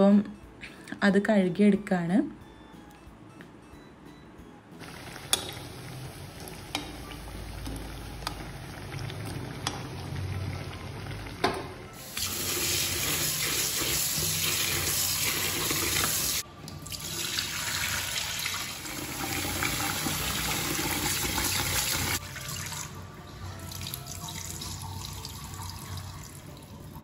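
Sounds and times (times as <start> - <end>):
tap water running into bowl: 11.2 - 23.0
rinse water poured into sink: 12.0 - 23.0.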